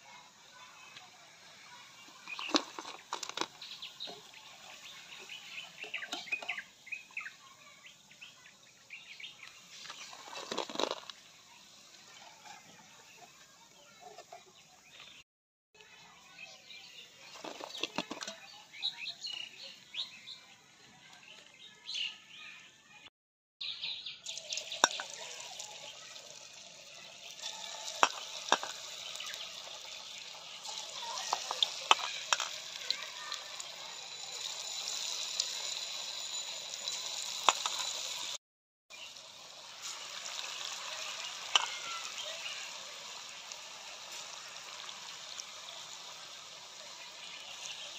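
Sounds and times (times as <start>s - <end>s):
food deep-frying in oil: 0.0s - 15.2s, 15.8s - 22.6s, 23.6s - 47.9s
crackling pops of frying: 0.1s - 7.1s, 9.4s - 13.5s, 17.2s - 18.4s, 24.3s - 35.7s, 36.8s - 38.4s, 39.0s - 47.9s.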